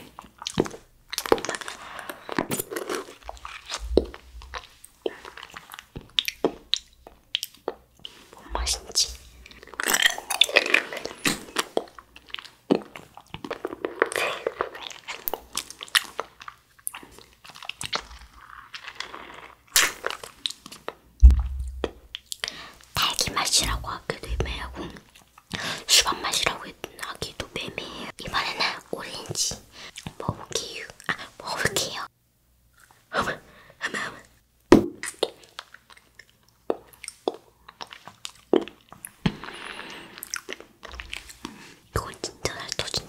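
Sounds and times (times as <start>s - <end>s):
wet mouth eating sounds: 0.0s - 27.1s, 34.8s - 43.0s
smacks squelches and clicks: 20.7s - 26.1s.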